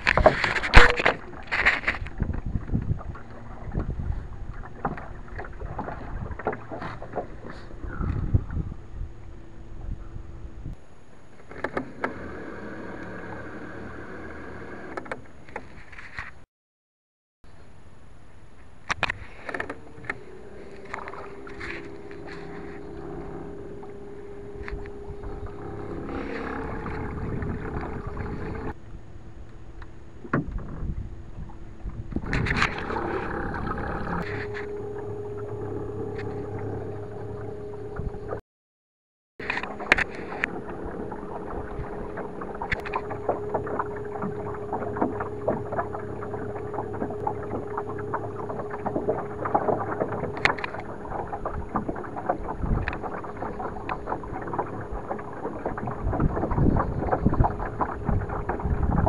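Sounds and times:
electric trolling motor whine: 0.0s - 15.6s, 19.5s - 38.4s, 39.4s - 59.0s
water and hull noise: 0.0s - 16.5s, 17.4s - 38.4s, 39.4s - 59.0s.

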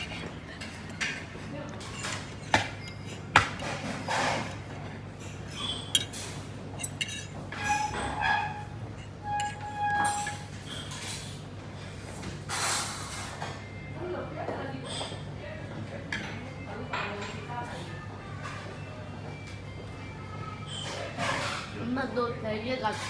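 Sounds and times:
restaurant dining room hum: 0.0s - 23.0s
fork clinking on china plate: 5.2s - 11.2s.

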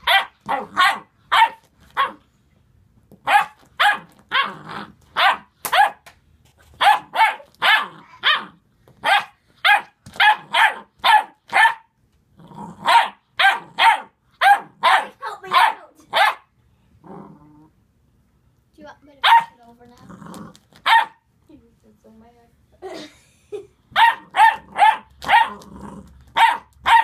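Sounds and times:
puppy yappy barks: 0.0s - 2.2s, 3.2s - 6.0s, 6.8s - 11.9s, 12.8s - 16.5s, 19.2s - 19.6s, 20.8s - 21.2s, 23.9s - 25.7s, 26.3s - 27.0s.

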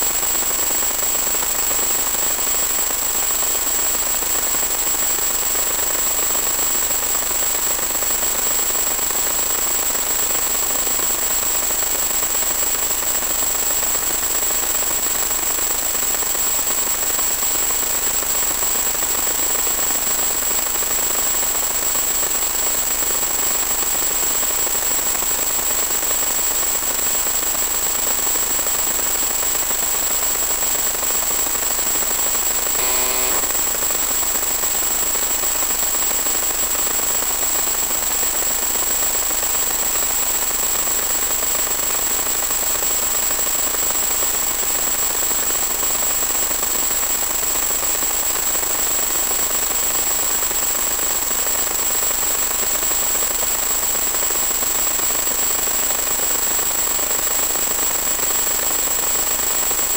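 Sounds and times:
high-pitched whine: 32.2s - 34.8s
static hiss: 32.3s - 34.0s.

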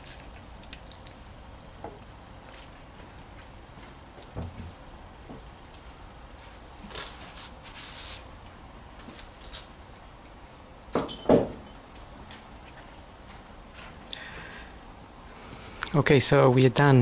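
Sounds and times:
rustling handling noise: 6.3s - 8.3s.

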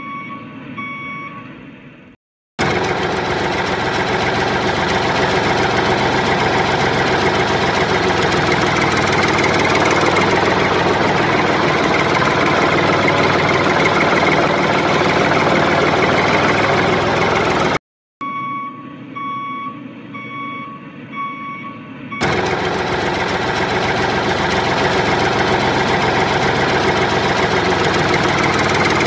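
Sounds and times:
tractor engine running: 2.6s - 17.8s, 22.1s - 29.0s.

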